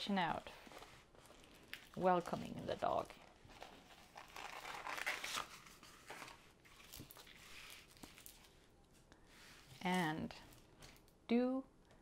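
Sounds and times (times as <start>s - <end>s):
plastic film crinkling and rustling: 0.3s - 8.7s.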